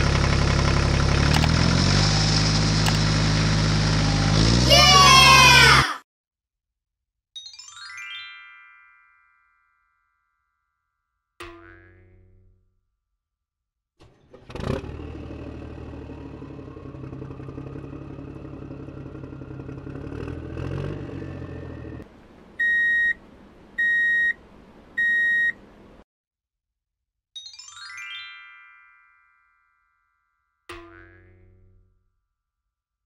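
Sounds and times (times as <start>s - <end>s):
cartoon truck engine: 0.0s - 6.0s, 14.0s - 26.0s.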